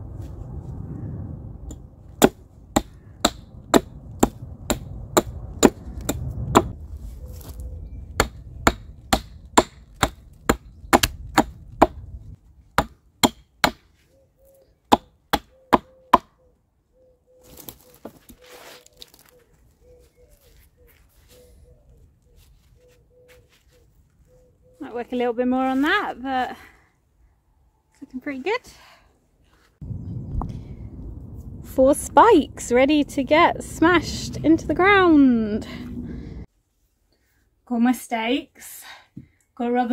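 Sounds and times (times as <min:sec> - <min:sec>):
hatchet chopping wood: 0:02.2 - 0:06.8, 0:08.2 - 0:12.0, 0:12.8 - 0:13.9, 0:14.9 - 0:16.3.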